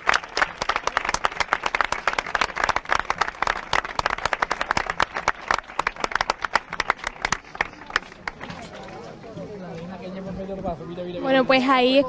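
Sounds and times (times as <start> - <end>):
crowd clapping: 0.0 - 9.1.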